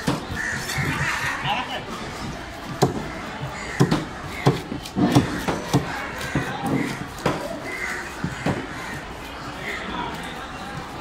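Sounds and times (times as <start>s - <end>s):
knife chopping fish on wood: 2.6s - 8.7s.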